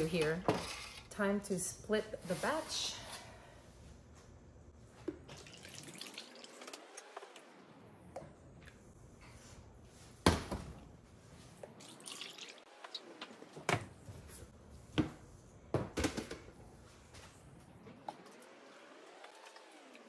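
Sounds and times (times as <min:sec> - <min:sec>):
liquid pouring and dripping: 0:05.1 - 0:07.4, 0:11.8 - 0:13.2.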